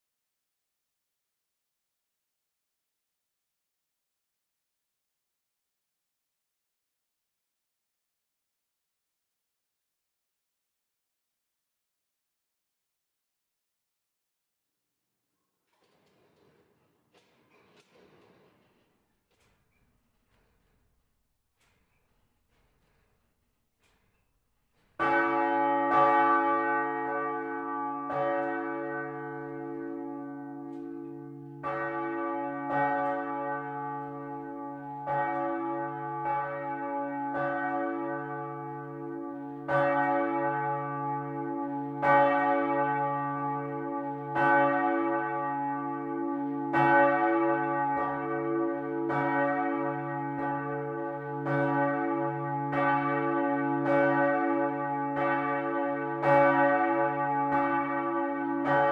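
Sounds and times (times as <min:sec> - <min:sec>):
swinging church bells ringing: 0:25.0 - 0:58.9.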